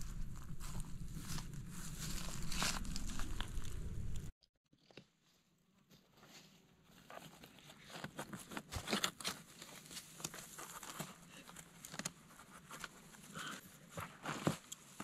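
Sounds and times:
knife digging in soil and leaves: 0.0 - 4.1.

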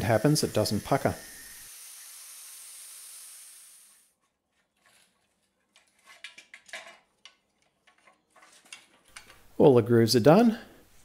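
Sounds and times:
angle grinder hiss: 0.0 - 4.0.

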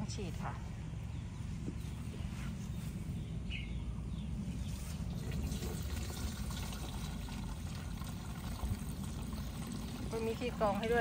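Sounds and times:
liquid pouring into plastic tank: 5.0 - 10.8.

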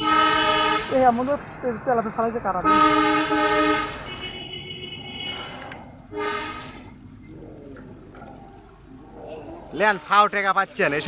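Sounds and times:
horn blasts: 0.0 - 1.1, 2.6 - 6.9.

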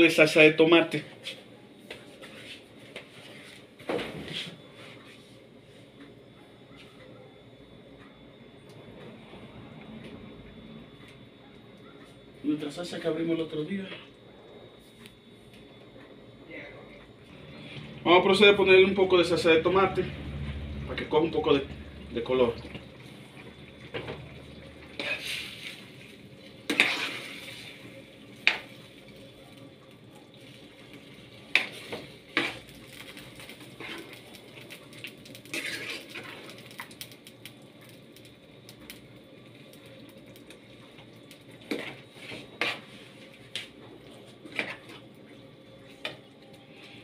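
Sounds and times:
spoon scraping metal pan: 26.7 - 27.5, 35.5 - 36.5, 41.7 - 43.0.

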